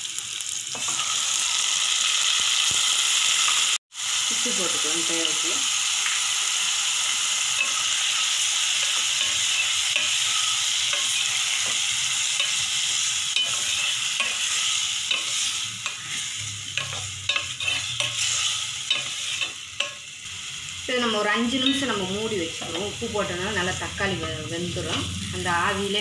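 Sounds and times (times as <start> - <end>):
tomatoes sizzling in hot oil: 0.0 - 26.0
spatula scraping a metal pot: 8.8 - 20.0.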